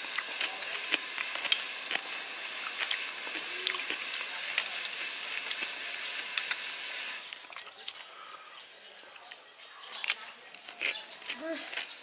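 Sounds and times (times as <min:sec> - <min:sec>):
steady high hiss: 0:00.0 - 0:07.3.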